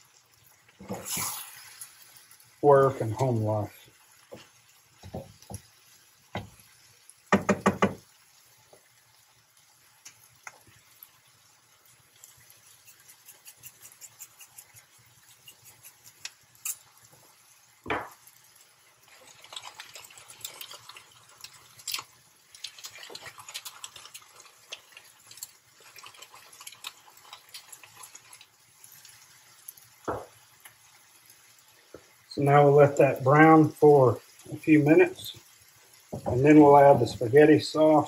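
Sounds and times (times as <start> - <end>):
salt shaker ticks: 12.2 - 16.9.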